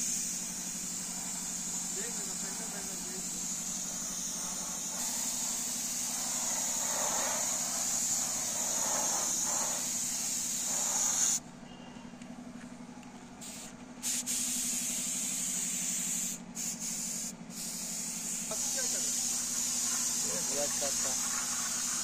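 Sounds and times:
air spray gun hissing: 0.0s - 11.4s, 13.4s - 22.0s
low hum: 3.4s - 11.2s.

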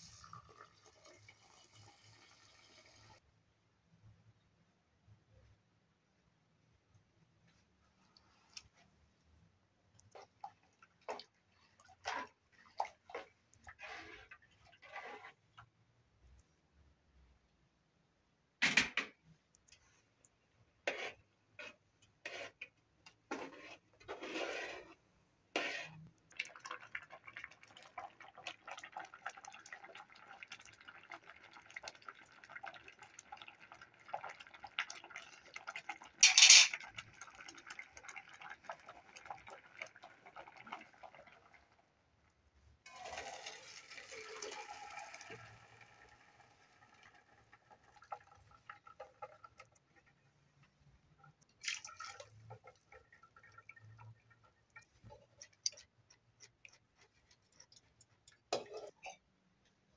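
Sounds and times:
water pouring: 0.0s - 3.2s, 10.0s - 15.4s, 25.6s - 41.8s, 42.9s - 50.2s, 51.3s - 59.0s
metal pot clanking: 36.2s - 36.8s, 58.6s - 59.2s
water splashing in pot: 51.5s - 56.6s.

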